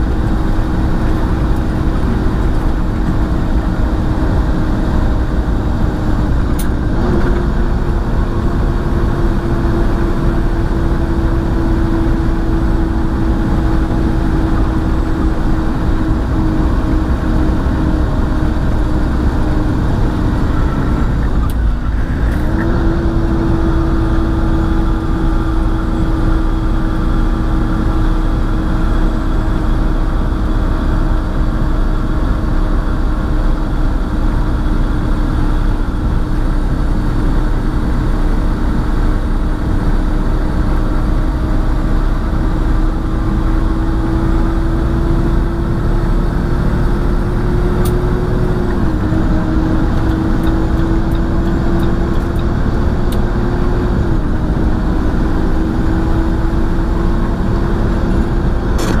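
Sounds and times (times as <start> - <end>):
diesel engine drone: 0.0 - 59.0
road noise: 0.0 - 59.0.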